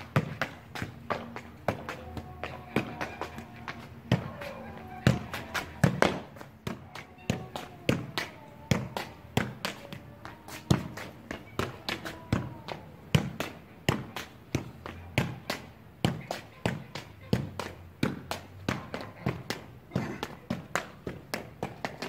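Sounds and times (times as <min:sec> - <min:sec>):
shoe kicking football: 0:05.0 - 0:09.8.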